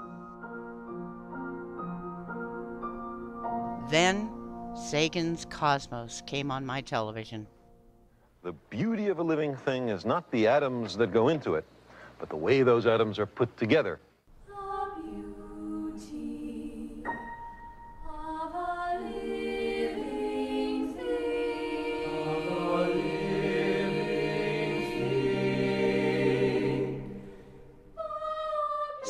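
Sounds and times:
choir singing held chords: 14.4s - 29.0s.

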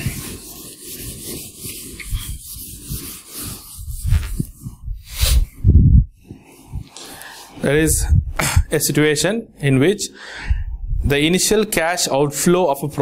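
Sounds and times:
duster rubbing whiteboard: 0.0s - 5.5s.

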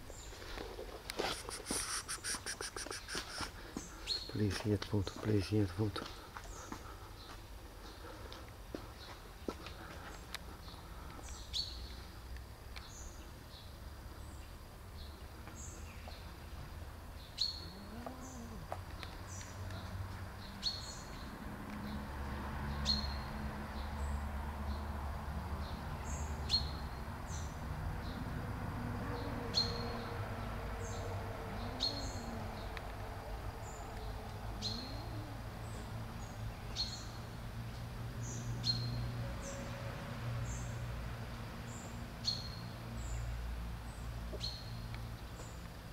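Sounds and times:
small bird chirping: 1.2s - 4.5s, 17.2s - 21.3s, 33.6s - 37.2s.

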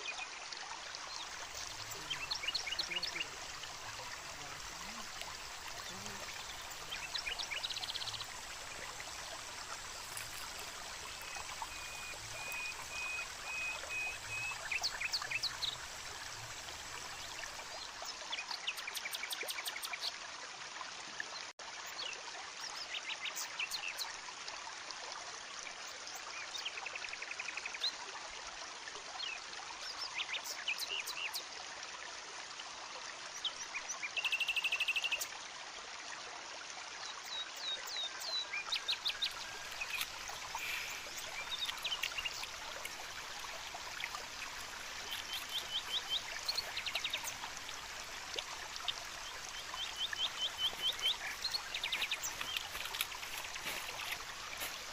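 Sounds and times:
birds chirping: 1.2s - 19.2s, 37.8s - 54.9s
steady rushing hiss: 38.9s - 54.9s.

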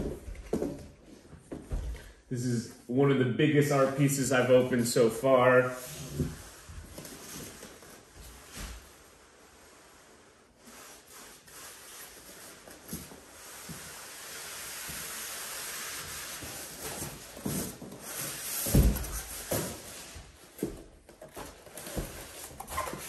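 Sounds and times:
cardboard rubbing and sliding: 5.8s - 23.0s.

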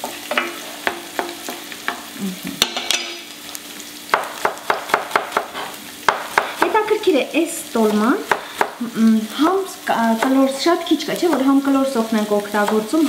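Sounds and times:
onions sizzling in a pan: 0.0s - 13.0s
utensil scraping a pan: 5.4s - 6.6s.

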